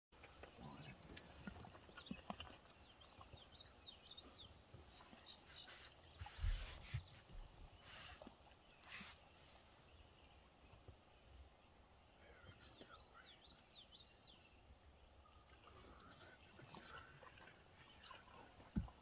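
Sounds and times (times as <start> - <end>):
water splashing and dripping: 0.2 - 3.5, 15.2 - 19.0
small birds chirping: 0.2 - 19.0.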